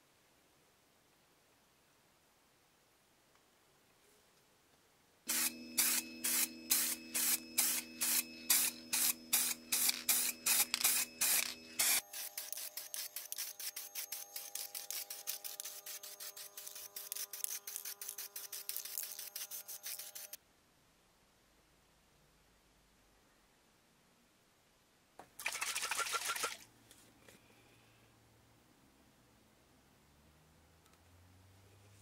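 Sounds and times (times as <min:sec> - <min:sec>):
spray paint can puffs: 0:05.3 - 0:20.4, 0:25.4 - 0:26.6.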